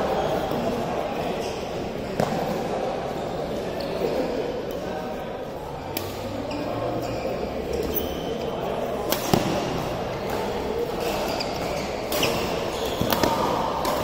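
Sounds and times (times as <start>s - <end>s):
court shoes squeaking: 0.0s - 5.1s, 5.8s - 14.0s
voices in a hall: 0.0s - 14.0s
badminton racket hitting shuttlecock: 9.0s - 14.0s.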